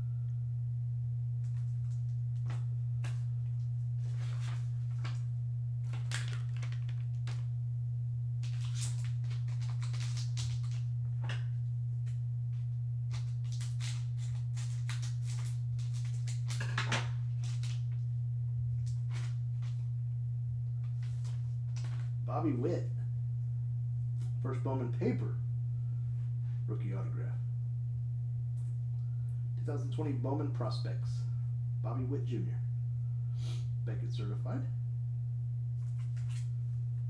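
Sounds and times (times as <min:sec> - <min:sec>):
steady low hum: 0:00.0 - 0:37.0
foil pack crinkling: 0:01.4 - 0:07.5, 0:08.4 - 0:11.5, 0:13.1 - 0:18.0, 0:18.7 - 0:19.9, 0:20.8 - 0:22.2, 0:35.8 - 0:36.5.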